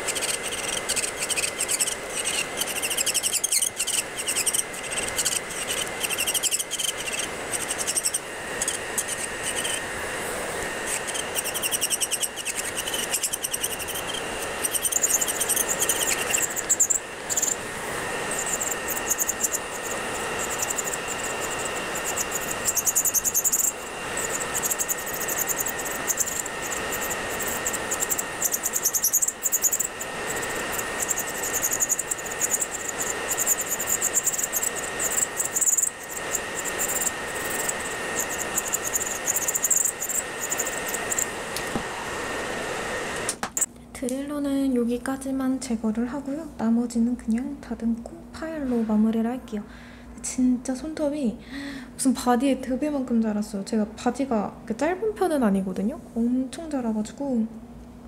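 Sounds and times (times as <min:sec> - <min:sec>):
bit filing fingernail: 0:00.0 - 0:09.9, 0:10.8 - 0:17.6, 0:18.2 - 0:41.3
electric nail drill whining: 0:00.0 - 0:43.7.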